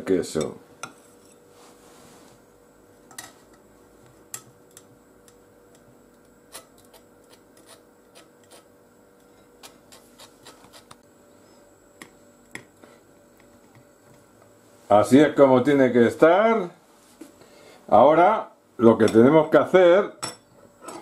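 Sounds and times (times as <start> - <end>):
knife scraping on crisp toast: 6.5 - 8.7.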